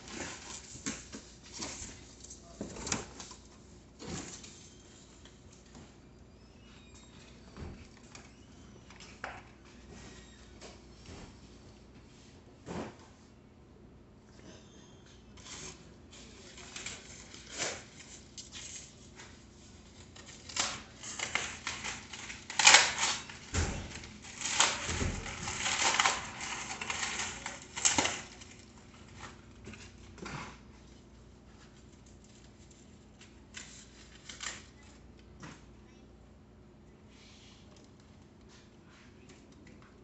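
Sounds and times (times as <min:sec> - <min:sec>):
paper and plastic wrap crinkling: 0:00.0 - 0:05.8, 0:15.4 - 0:35.2.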